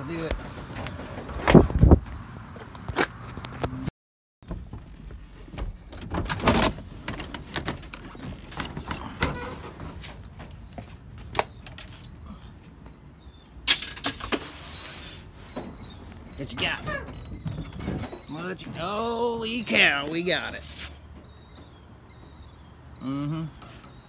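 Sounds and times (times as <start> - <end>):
knocks clicks and clatter: 4.4 - 12.1.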